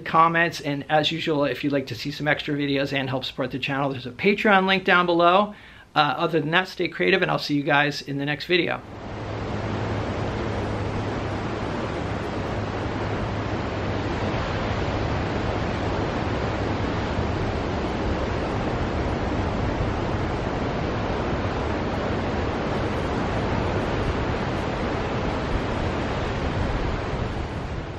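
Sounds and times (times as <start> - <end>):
low rumble of surf: 0.0 - 27.9
ocean surf washing among rocks: 8.7 - 27.9.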